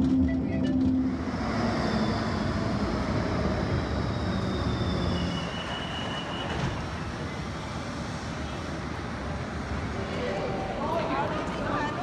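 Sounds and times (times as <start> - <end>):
tram wheels rumbling on rails: 0.0 - 12.0
high-pitched wheel squeal: 1.7 - 7.5.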